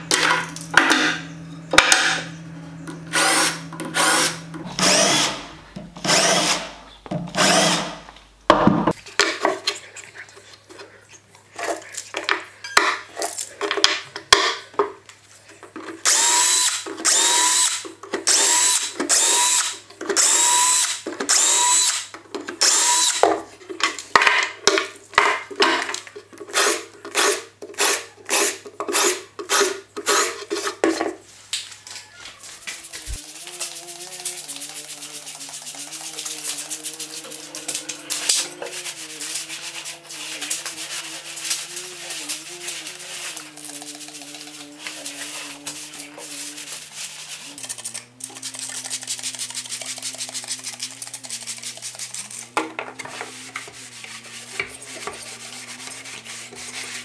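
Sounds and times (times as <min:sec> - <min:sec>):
cordless drill boring holes: 0:03.1 - 0:08.0, 0:16.0 - 0:23.3.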